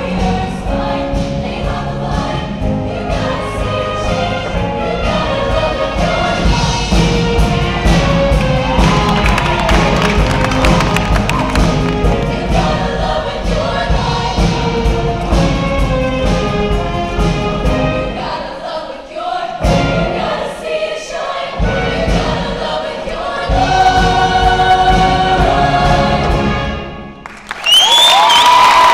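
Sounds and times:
women's choir singing: 0.0 - 26.9
live band playing: 6.4 - 13.2.

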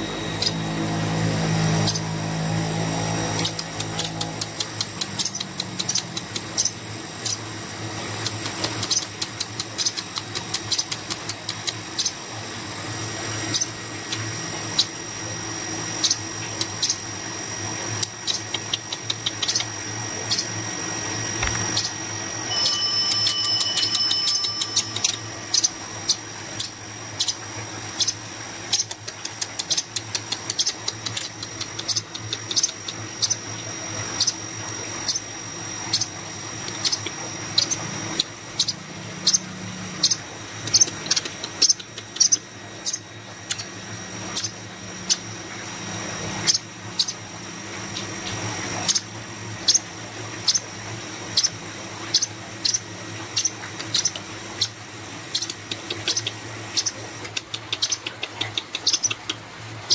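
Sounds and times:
thin high tone: 0.0 - 9.1, 10.7 - 29.0.

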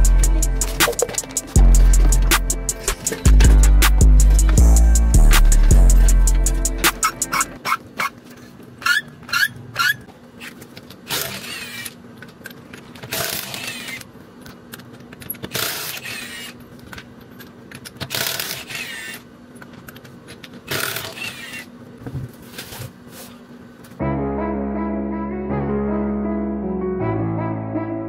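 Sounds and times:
music: 0.0 - 7.6, 24.0 - 28.0.

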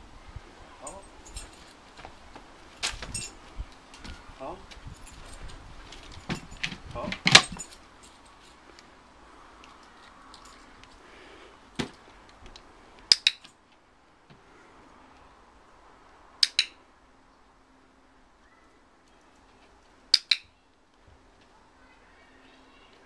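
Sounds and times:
metal lead clip jangling: 0.8 - 1.8, 2.8 - 3.4, 4.9 - 8.6, 16.4 - 16.8.

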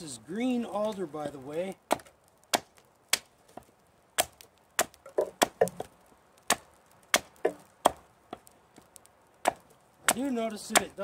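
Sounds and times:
hatchet chopping wood: 1.9 - 5.9, 6.5 - 8.5, 9.4 - 11.0.

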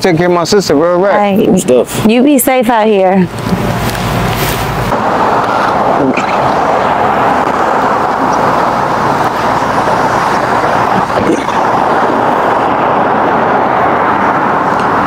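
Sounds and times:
road traffic noise: 0.0 - 15.0.

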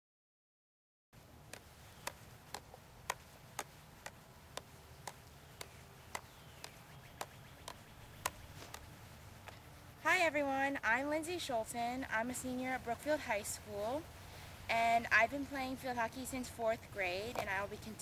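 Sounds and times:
hockey stick tapping ball: 1.5 - 8.9.

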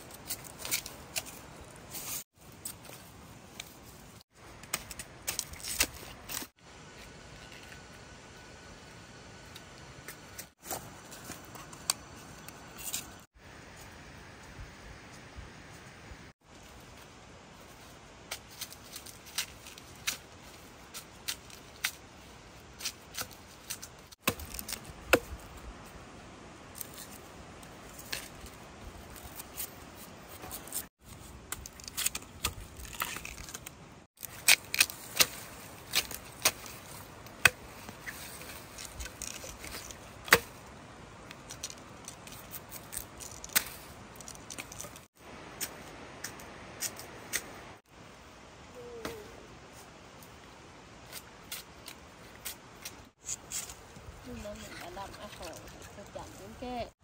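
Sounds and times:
bamboo shoots snapping: 31.5 - 37.6.

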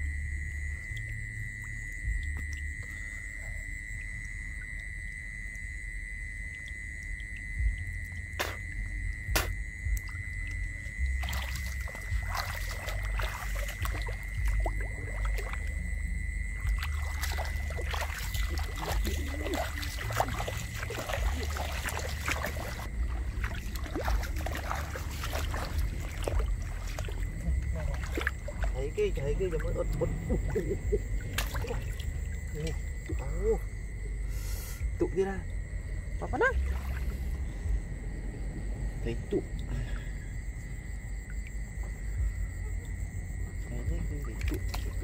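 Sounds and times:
low rumble: 0.0 - 45.0
water sloshing and splashing: 0.0 - 45.0.

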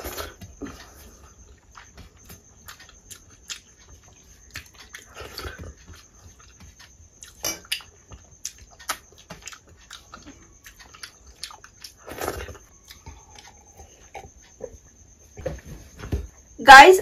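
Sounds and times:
wet lip smacks and chewing: 2.6 - 14.5.

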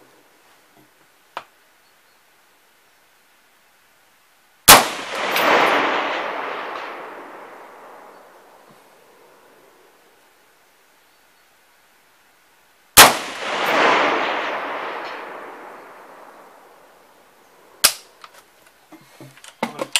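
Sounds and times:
rifle shot with echo: 4.7 - 8.7, 13.0 - 17.2.

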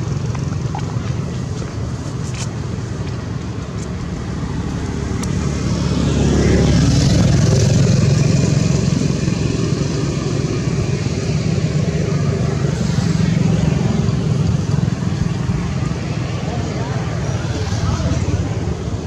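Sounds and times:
vehicle engine rumble: 0.0 - 19.0.

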